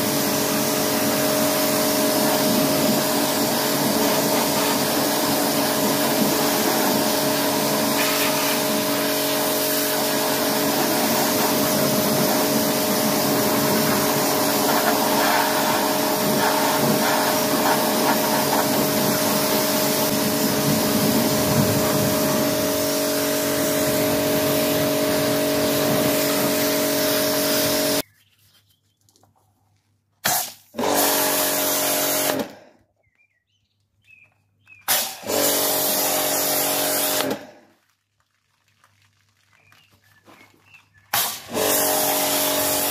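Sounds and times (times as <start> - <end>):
pressure washer motor hum: 0.0 - 28.0, 30.8 - 32.6, 34.9 - 37.5, 41.1 - 42.9
water jet hissing on metal: 0.2 - 28.0.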